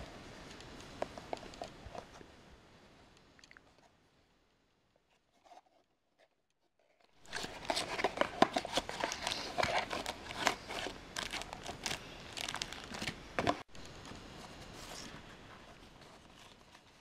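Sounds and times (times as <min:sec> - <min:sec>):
cardboard box being opened: 0:07.2 - 0:13.6
plastic wrapping crinkling: 0:07.2 - 0:17.0.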